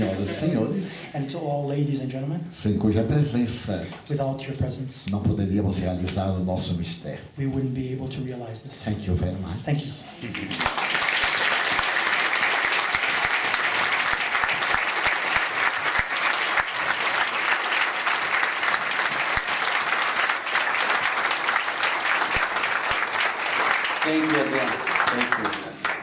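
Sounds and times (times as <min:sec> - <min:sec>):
audience applauding: 0:00.0 - 0:00.7, 0:10.3 - 0:26.0.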